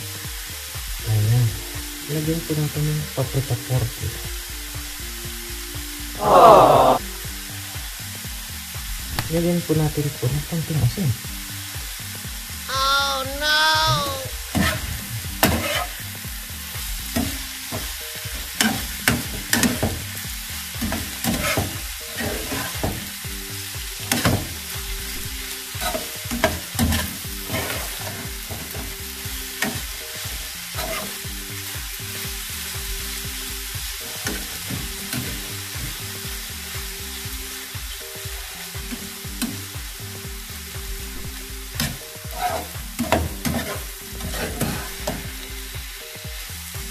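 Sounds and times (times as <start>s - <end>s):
food sizzling: 0.0s - 46.9s
spatula scraping frying pan: 14.5s - 16.0s, 21.2s - 22.8s, 26.9s - 28.2s, 30.8s - 31.2s, 42.4s - 45.2s.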